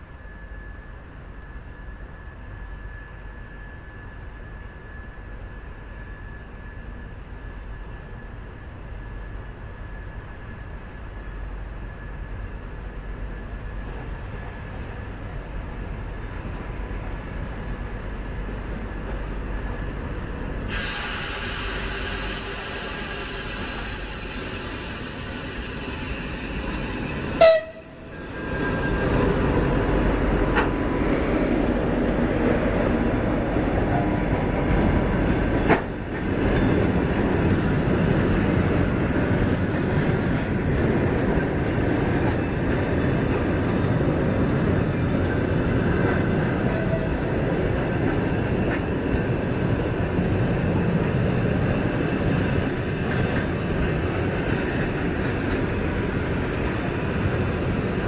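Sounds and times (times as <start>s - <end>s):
train wheels on rails: 0.0s - 58.0s
train horn toot: 27.4s - 28.2s.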